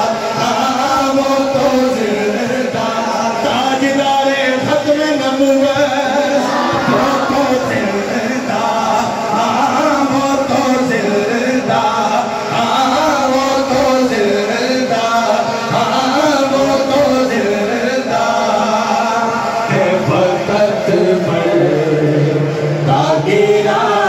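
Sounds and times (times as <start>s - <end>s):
man singing over loudspeaker: 0.0s - 24.0s
crowd chanting along: 5.8s - 24.0s.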